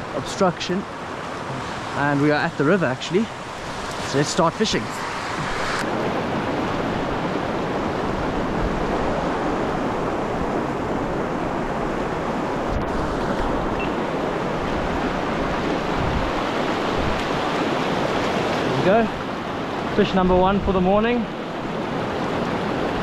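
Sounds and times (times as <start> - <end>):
river water rushing: 0.0 - 23.0.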